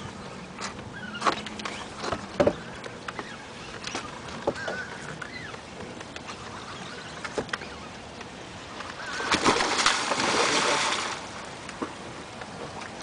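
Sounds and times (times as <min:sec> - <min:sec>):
fish thrashing and splashing: 0:09.0 - 0:11.9.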